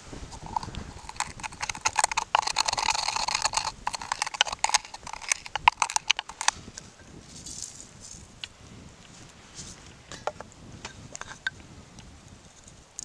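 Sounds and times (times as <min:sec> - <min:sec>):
peppercorns crunching in mortar: 0:00.3 - 0:08.4.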